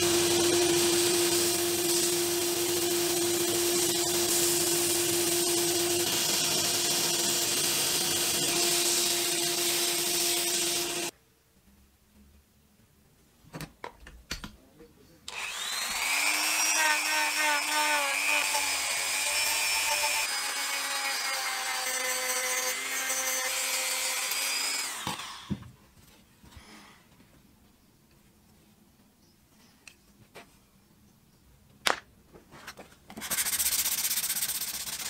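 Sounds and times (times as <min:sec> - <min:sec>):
rotary tool sanding wood: 0:00.0 - 0:11.1, 0:15.3 - 0:25.4, 0:33.2 - 0:35.0.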